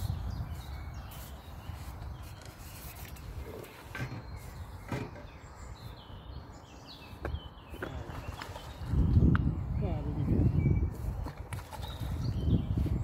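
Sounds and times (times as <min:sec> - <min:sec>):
faint birds chirping: 0:00.0 - 0:13.0.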